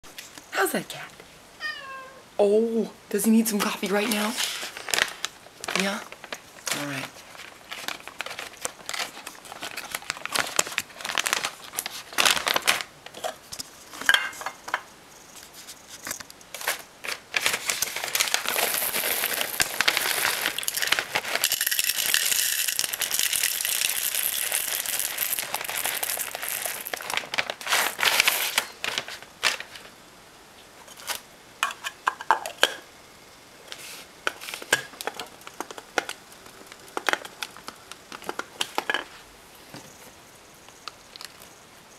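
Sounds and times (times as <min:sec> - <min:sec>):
coffee bag crinkling: 0:04.0 - 0:13.2, 0:16.0 - 0:29.9
coffee beans rattling: 0:04.0 - 0:14.6, 0:16.0 - 0:29.8.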